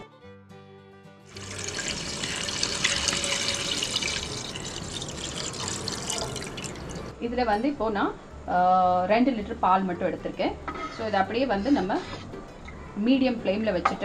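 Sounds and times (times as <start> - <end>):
milk pouring into a pot: 1.3 - 7.2.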